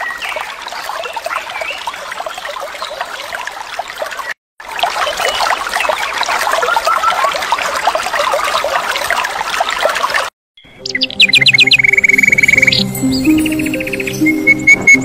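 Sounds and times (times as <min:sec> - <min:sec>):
stream water over rocks: 0:00.0 - 0:10.4.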